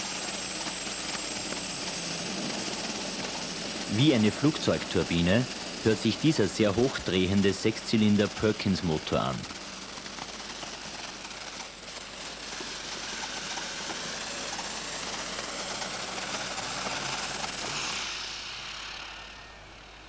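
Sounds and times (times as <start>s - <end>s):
diesel engine howling: 0.0s - 10.3s.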